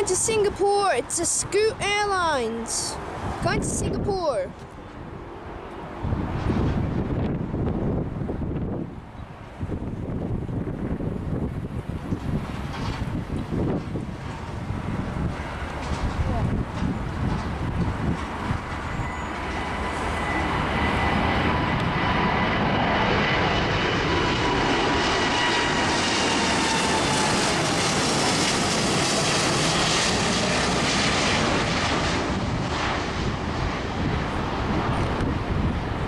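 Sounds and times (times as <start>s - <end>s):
high jet whine: 0.0s - 36.0s
jet engines roaring overhead: 0.0s - 36.0s.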